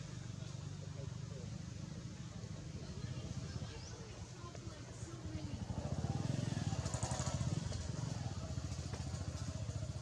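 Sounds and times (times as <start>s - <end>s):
small engine puttering: 5.6s - 10.0s.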